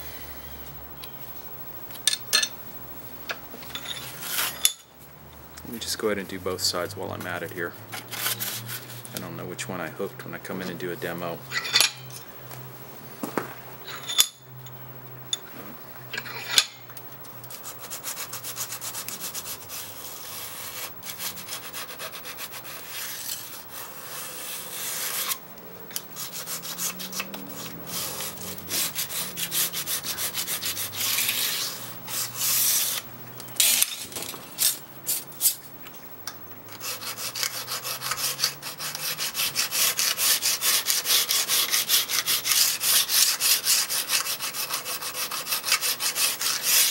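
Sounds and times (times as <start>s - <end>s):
burnisher rubbing scraper edge: 4.0s - 4.8s, 7.2s - 9.5s, 17.5s - 33.8s, 36.7s - 46.9s.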